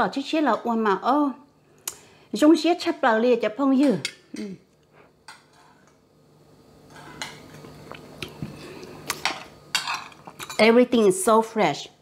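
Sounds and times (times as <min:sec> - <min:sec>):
tableware clinking: 0:06.9 - 0:07.6, 0:09.2 - 0:10.7.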